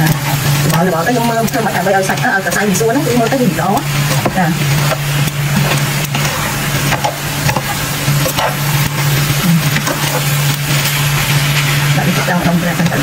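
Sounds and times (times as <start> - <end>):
low hum: 0.0 - 13.0
noodles sizzling in a pan: 0.0 - 13.0
utensils clicking against pan: 0.0 - 13.0.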